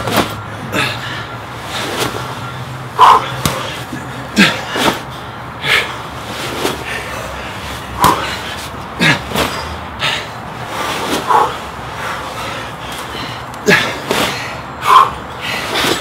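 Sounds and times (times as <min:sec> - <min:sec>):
sandbag thudding: 0:00.0 - 0:00.4, 0:03.0 - 0:03.8, 0:08.0 - 0:08.4
forceful exhalations: 0:00.0 - 0:16.0.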